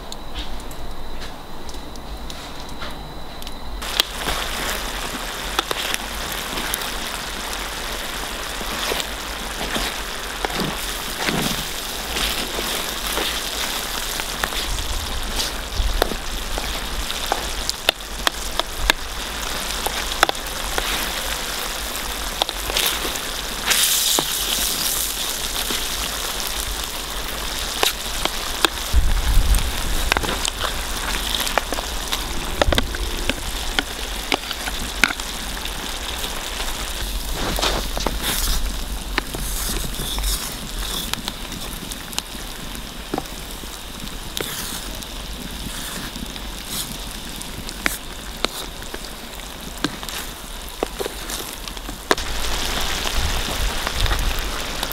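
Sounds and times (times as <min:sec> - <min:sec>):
wood fire crackles and pops: 0:00.0 - 0:54.9
paella sizzling and bubbling in pan: 0:03.8 - 0:54.9
low rumble: 0:28.9 - 0:35.7.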